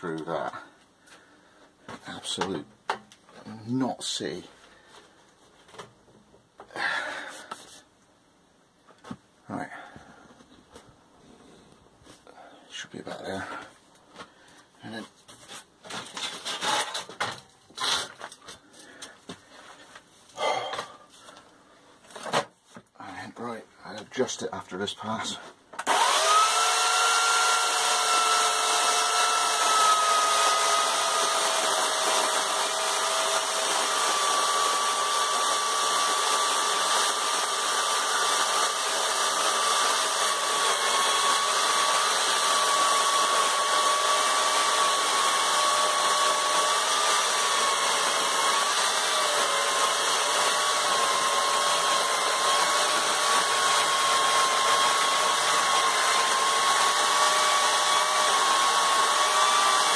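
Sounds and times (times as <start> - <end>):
electric chainsaw cutting log: 25.8 - 59.9.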